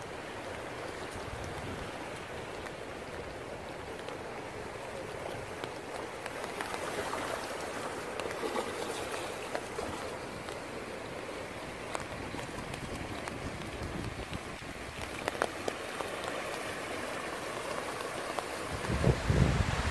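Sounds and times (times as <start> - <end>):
rushing floodwater: 0.0 - 19.9
light ticks: 0.4 - 6.8, 11.8 - 17.0.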